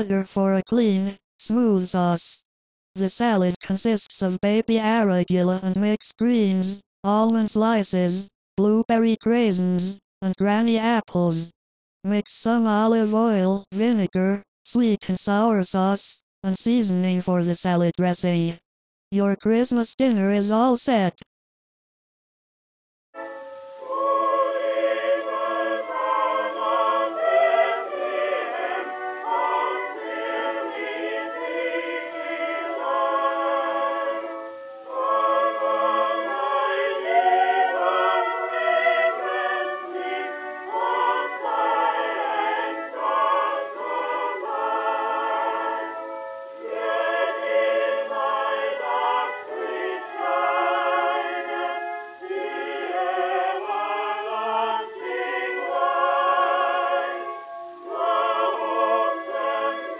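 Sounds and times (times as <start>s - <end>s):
choir singing: 23.2s - 59.9s.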